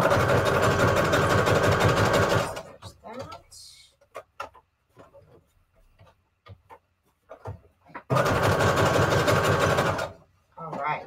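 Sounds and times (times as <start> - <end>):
sewing machine stitching: 0.0 - 2.8, 8.0 - 10.2.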